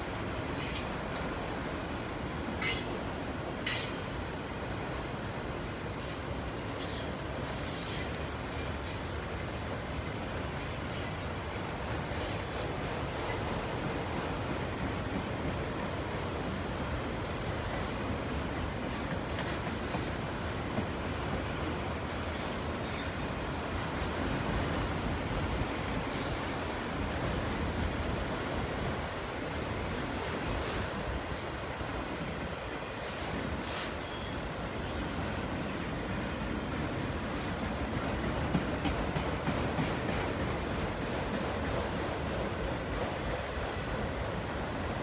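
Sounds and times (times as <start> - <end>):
train wheels rumbling on rails: 0.0 - 45.0
high-pitched hisses: 5.9 - 9.7.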